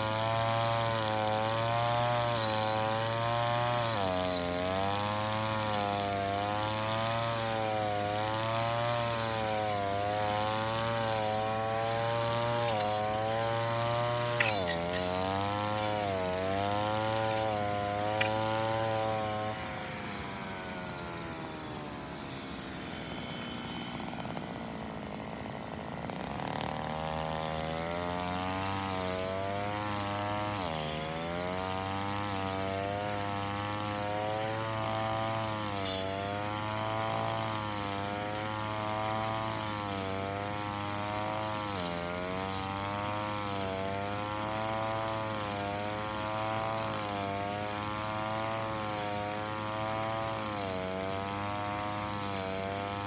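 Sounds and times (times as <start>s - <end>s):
brush cutter engine revving: 0.0s - 53.0s.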